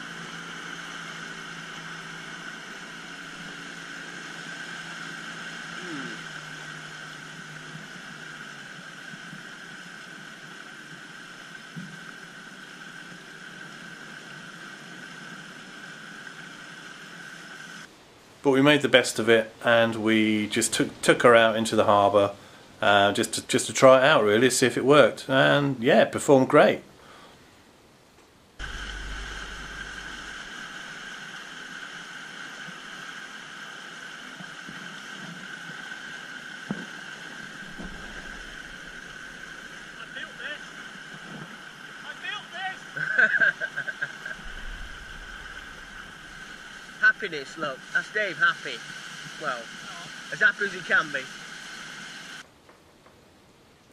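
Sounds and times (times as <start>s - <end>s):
outboard motor running: 0.0s - 17.9s, 28.6s - 52.4s
water rushing in wake: 28.6s - 52.4s.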